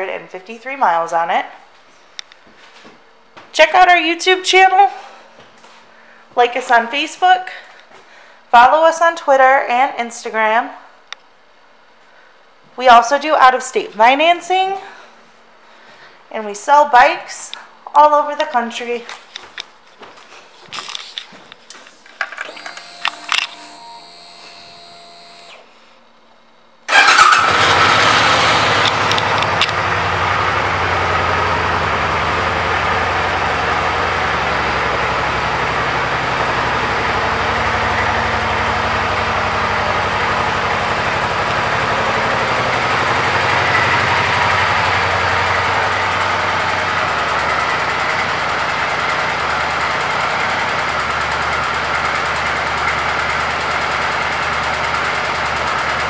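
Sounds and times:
motorcycle engine starting and idling: 22.4s - 25.7s, 26.9s - 56.0s.

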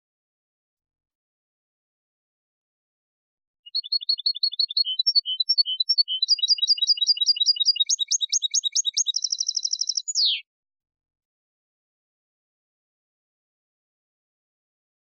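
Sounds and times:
goldfinch singing: 3.7s - 10.4s.

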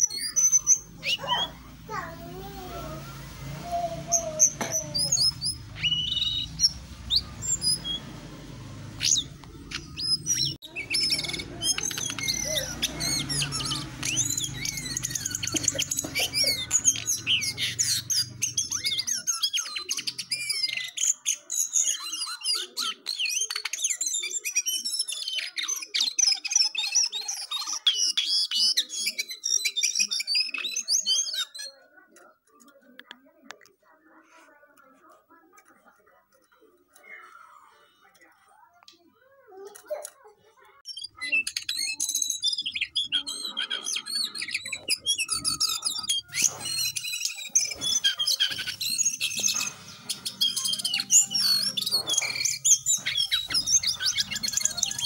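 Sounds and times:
songbird singing: 0.0s - 22.8s, 40.9s - 55.0s.

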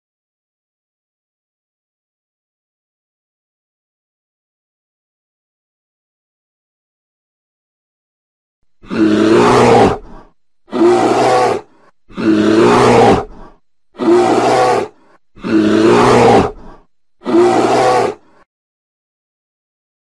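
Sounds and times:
bear growling: 8.8s - 18.5s.

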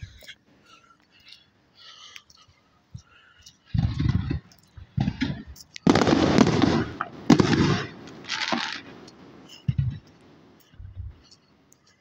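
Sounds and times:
fireworks booming: 3.7s - 11.2s
fireworks crackling: 3.7s - 11.3s.

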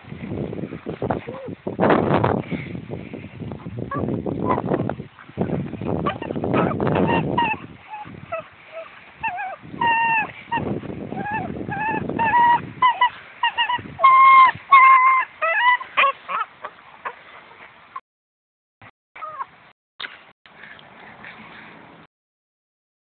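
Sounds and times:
puppy growling: 6.0s - 17.2s
puppy yelping and whining: 6.0s - 17.2s, 19.2s - 19.5s.

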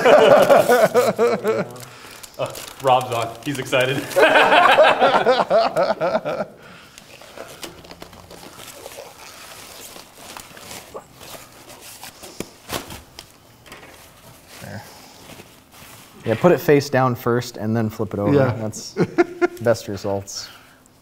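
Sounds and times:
glove and desk clicks and rustles: 6.9s - 14.5s.

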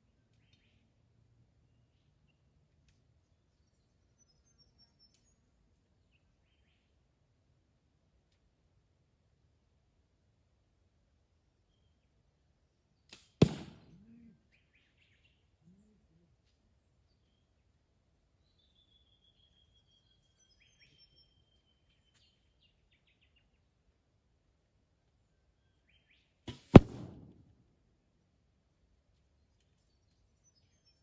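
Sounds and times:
arrow hitting cardboard target: 13.1s - 13.9s, 26.5s - 27.4s
faint arrow tick: 26.5s - 27.3s.

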